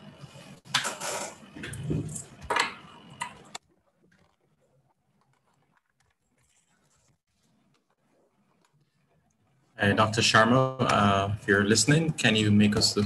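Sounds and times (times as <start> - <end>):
microphone handling noise: 1.4 - 2.3.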